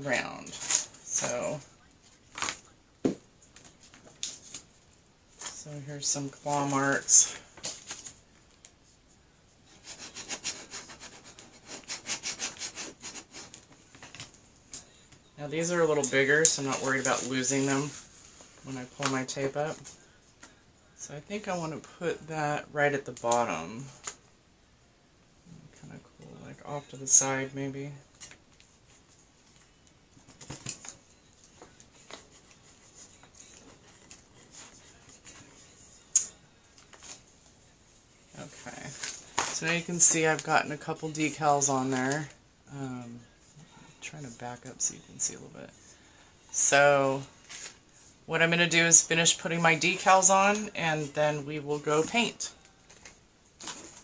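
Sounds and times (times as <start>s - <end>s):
transfer tape crinkling: 1.9s - 2.7s
plastic scraper scratching on tape: 9.8s - 13.6s.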